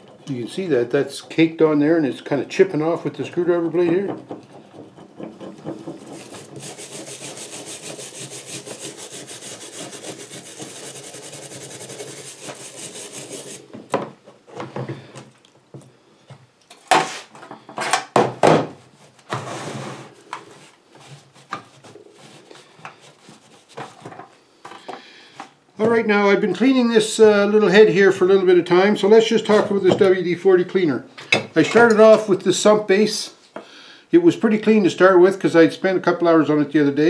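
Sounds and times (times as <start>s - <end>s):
rag rubbing metal part: 2.8s - 13.8s.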